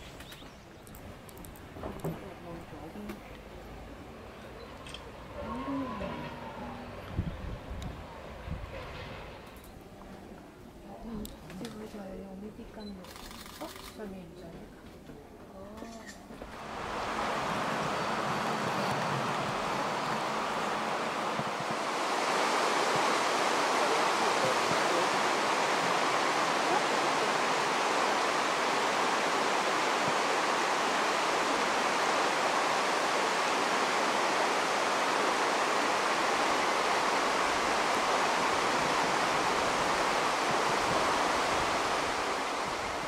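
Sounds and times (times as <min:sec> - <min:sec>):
river flowing over rapids: 0:16.5 - 0:43.0.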